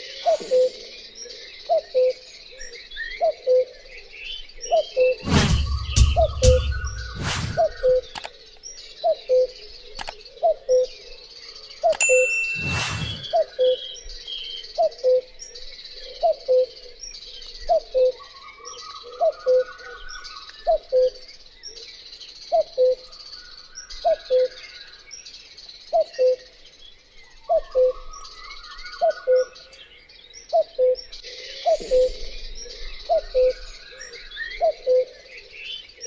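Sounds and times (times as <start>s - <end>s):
cuckoo calling: 11.9s - 14.0s.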